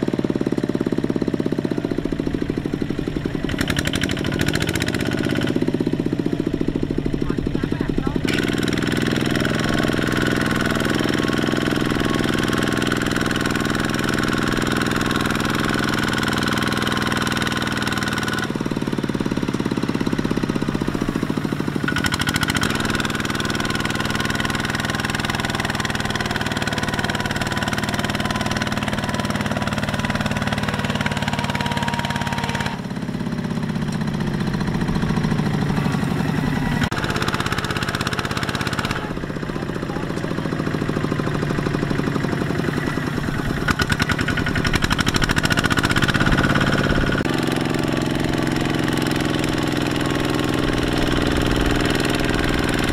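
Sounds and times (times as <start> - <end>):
diesel tractor engine clattering: 0.0 - 52.9.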